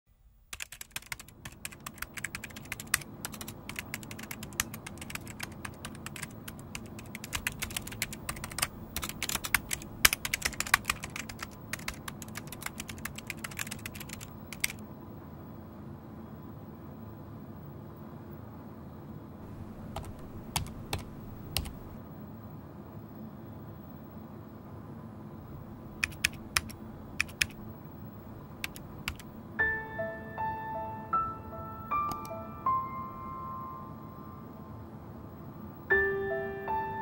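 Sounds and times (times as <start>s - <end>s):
steady low hum: 0.2s - 29.6s
typing on computer keyboard: 0.5s - 14.8s, 19.5s - 22.0s, 26.0s - 27.6s, 28.6s - 29.3s, 32.0s - 32.3s.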